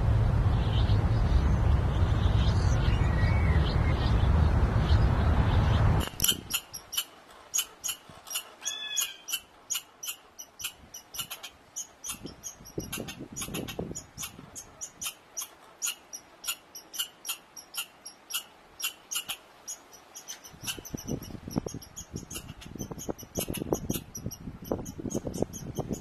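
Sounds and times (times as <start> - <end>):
squirrel chirping: 6.0 - 26.0.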